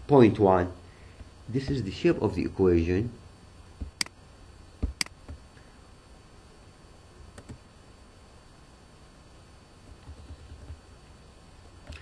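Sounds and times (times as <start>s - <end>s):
computer mouse clicks: 7.3s - 7.6s.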